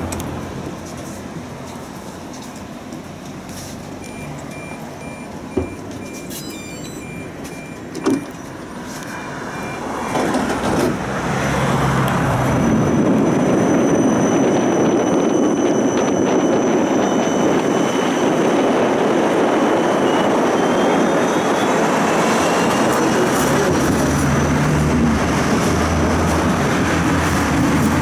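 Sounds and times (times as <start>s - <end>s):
tram rolling noise: 0.0s - 28.0s
door-warning beeps: 4.0s - 10.6s.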